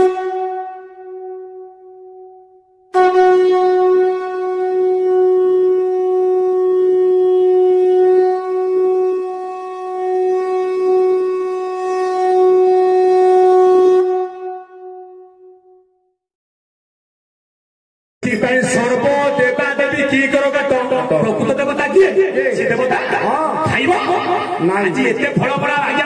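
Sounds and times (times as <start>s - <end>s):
conch shell blown: 0.0s - 16.2s.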